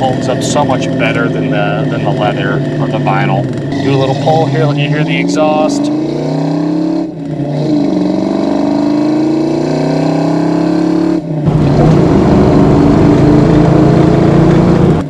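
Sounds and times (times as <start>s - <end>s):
car engine accelerating: 0.0s - 15.0s
road and wind rush: 2.1s - 15.0s.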